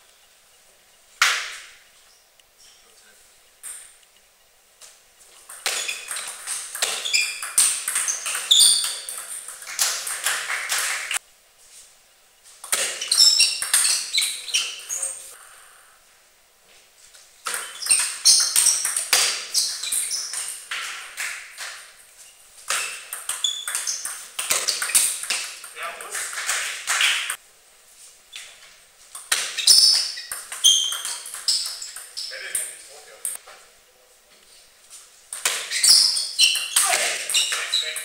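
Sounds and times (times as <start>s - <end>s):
table tennis ball clicking: 29.2s - 32.3s.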